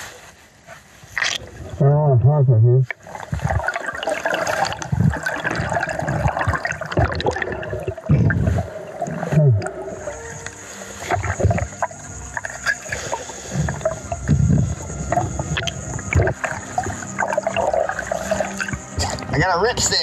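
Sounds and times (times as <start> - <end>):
underwater bubbling and gurgling: 1.1 - 19.4
underwater clicks and knocks: 13.7 - 17.9.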